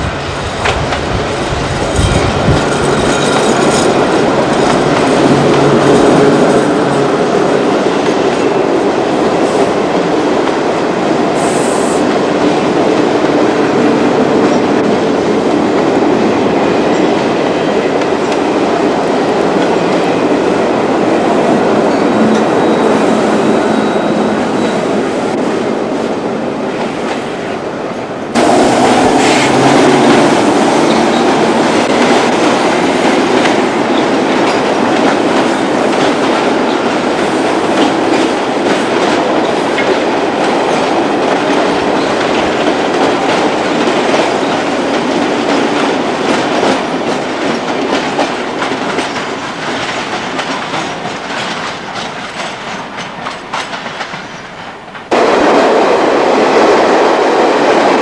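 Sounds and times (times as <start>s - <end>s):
electric train passing: 0.0s - 58.0s
wheels clattering over rail joints: 0.6s - 8.5s.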